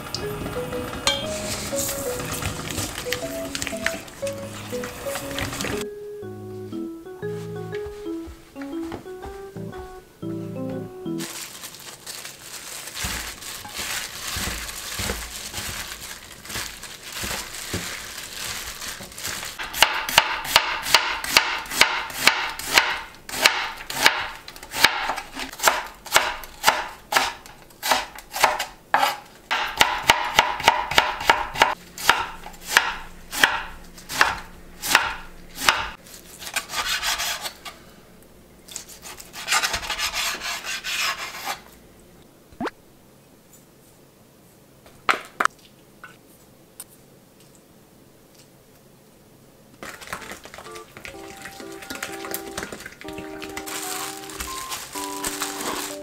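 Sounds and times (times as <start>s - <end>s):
garlic scapes rustling in steel bowl: 1.2s - 5.8s, 11.2s - 19.6s.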